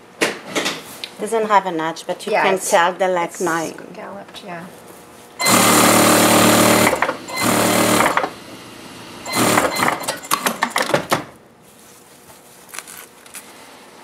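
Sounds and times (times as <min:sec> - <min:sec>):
sewing machine stitching: 0:05.4 - 0:08.4, 0:09.2 - 0:11.0
cloth rustling and scraping: 0:11.6 - 0:13.7.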